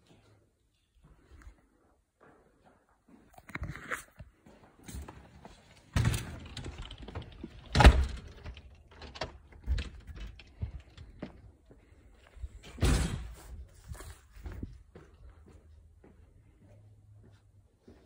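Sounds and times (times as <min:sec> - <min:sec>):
footsteps: 0:00.0 - 0:06.0, 0:09.6 - 0:18.0.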